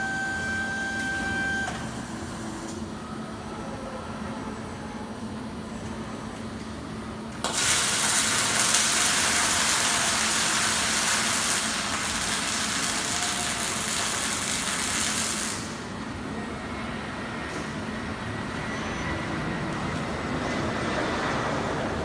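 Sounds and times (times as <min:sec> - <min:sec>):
welding arc hissing: 0:07.4 - 0:15.9.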